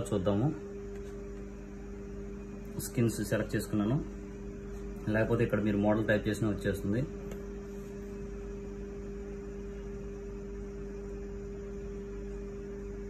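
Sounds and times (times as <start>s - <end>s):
steady electrical hum: 0.0s - 13.0s.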